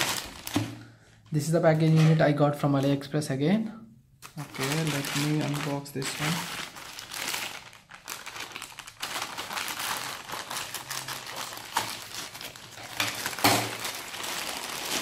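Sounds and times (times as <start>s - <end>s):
plastic bag crinkling: 0.0s - 3.0s, 4.2s - 15.0s.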